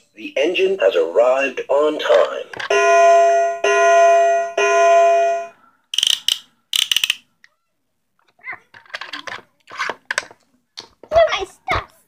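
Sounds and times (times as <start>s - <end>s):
ringing bell-like tones: 2.7s - 5.6s
plastic ratchet clicking: 5.9s - 7.2s.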